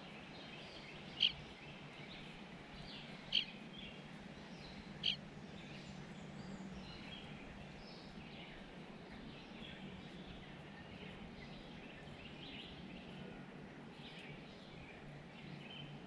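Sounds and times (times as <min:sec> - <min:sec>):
birds chirping and whistling: 0:04.7 - 0:05.2.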